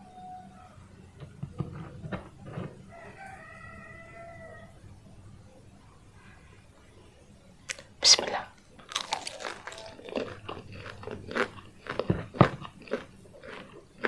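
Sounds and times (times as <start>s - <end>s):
rooster crowing: 0.0s - 1.0s, 2.8s - 5.0s.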